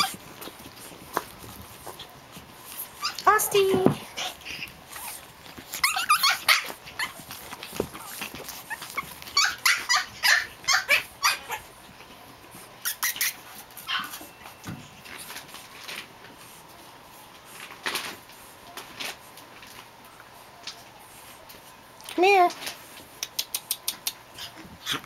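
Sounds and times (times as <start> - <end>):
puppies yapping: 0.0 - 3.4, 4.1 - 12.0, 12.8 - 14.6.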